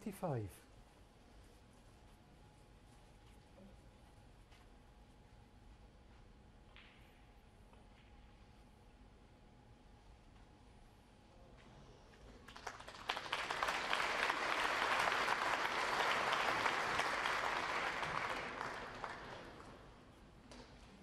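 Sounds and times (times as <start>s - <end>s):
audience applauding: 12.4s - 19.9s.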